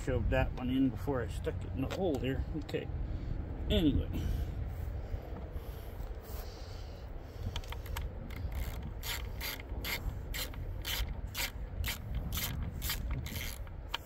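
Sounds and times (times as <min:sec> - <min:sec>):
ratchet wrench clicking: 0:07.5 - 0:14.0.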